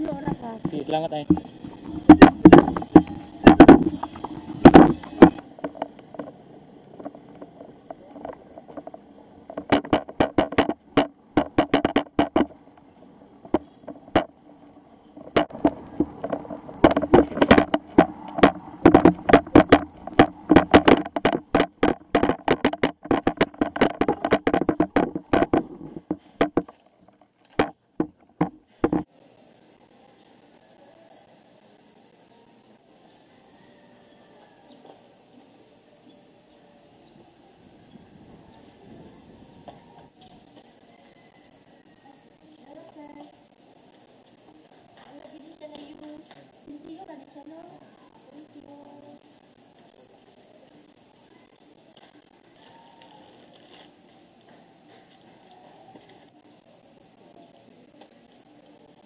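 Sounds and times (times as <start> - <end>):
bicycle rattling and knocking: 0.0 - 29.1.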